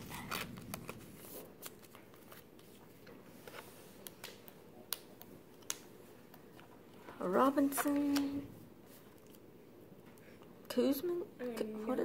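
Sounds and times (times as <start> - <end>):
plastic card sleeve rustling: 0.0 - 4.5, 7.4 - 9.5.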